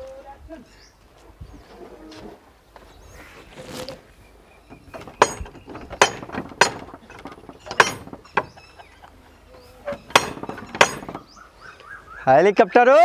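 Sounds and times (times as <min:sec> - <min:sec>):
knocking on wooden gate: 0:04.7 - 0:08.6, 0:09.9 - 0:11.3.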